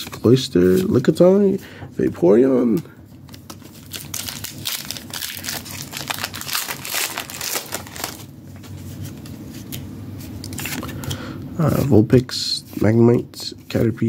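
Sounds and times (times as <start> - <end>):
foil wrapper crinkling: 3.2 - 8.3.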